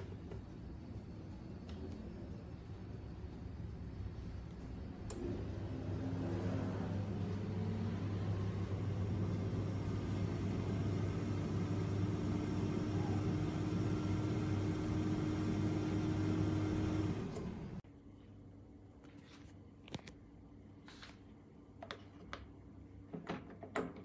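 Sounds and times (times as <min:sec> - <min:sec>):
air fryer fan hum: 0:00.0 - 0:17.9.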